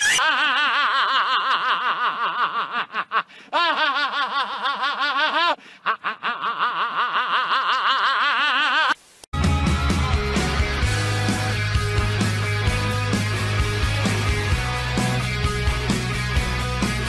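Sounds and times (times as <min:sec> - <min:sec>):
man laughing in high cackle: 0:00.0 - 0:09.0.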